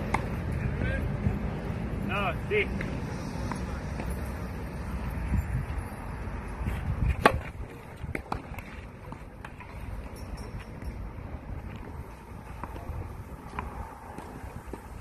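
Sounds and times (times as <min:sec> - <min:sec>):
tennis ball bouncing: 0:00.0 - 0:00.4, 0:07.1 - 0:09.7, 0:12.6 - 0:14.9
wind on microphone: 0:05.1 - 0:08.6
racket striking tennis ball: 0:07.1 - 0:08.8.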